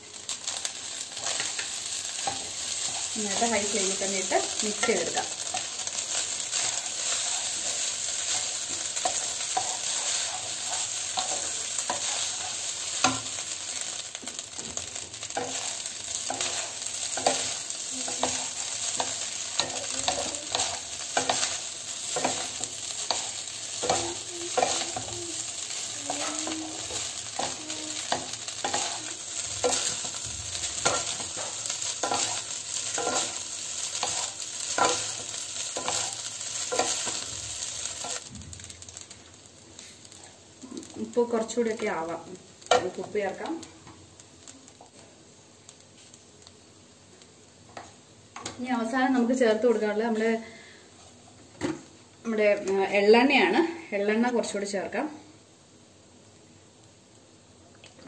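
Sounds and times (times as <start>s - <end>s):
rice sizzling in a pan: 0.0s - 58.0s
wooden spatula scraping a pan: 6.5s - 13.4s, 15.4s - 33.4s.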